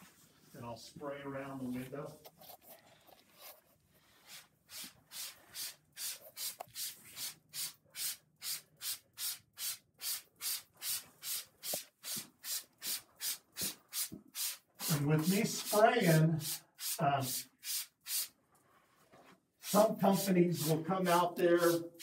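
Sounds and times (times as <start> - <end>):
spray bottle hissing: 4.3 - 18.4.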